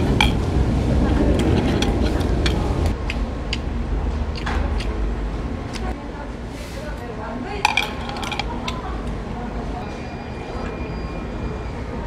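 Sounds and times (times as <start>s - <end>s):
chopsticks clinking on dishes: 7.6s - 8.8s.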